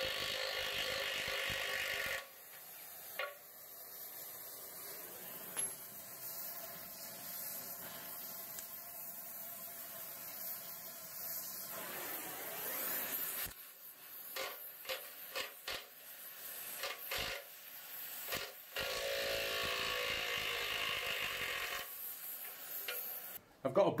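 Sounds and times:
impact wrench running: 0.0s - 2.4s
gas torch hissing: 0.0s - 23.4s.

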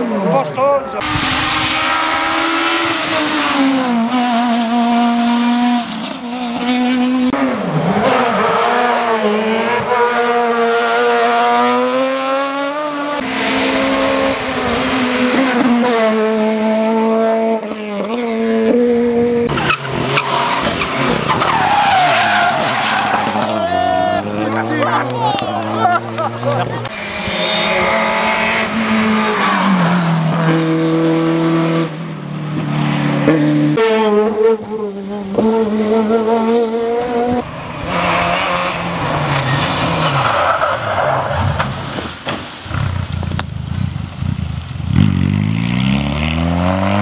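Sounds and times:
rally car engines revving: 0.0s - 47.0s
tyres squealing and skidding: 0.7s - 4.2s, 19.5s - 27.1s, 37.3s - 43.0s.

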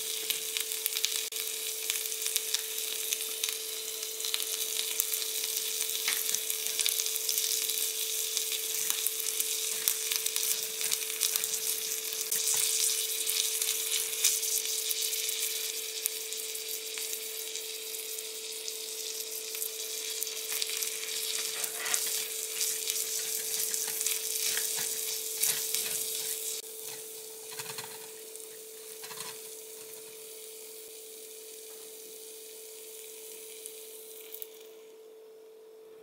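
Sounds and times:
onion sizzling in a pan: 0.0s - 35.1s
spatula scraping a pan: 21.0s - 30.0s.

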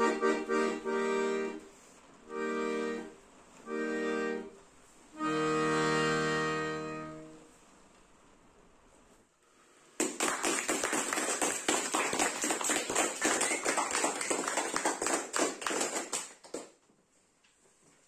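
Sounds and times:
hand clapping: 10.0s - 16.8s.

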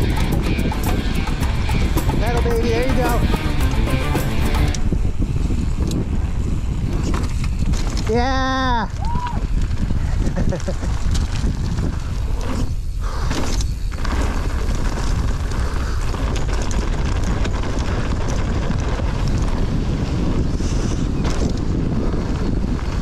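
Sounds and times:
wind on microphone: 0.0s - 3.9s, 4.5s - 23.0s
gravel clicks: 0.0s - 23.0s
bike tyres rolling on rocky trail: 4.7s - 23.0s.

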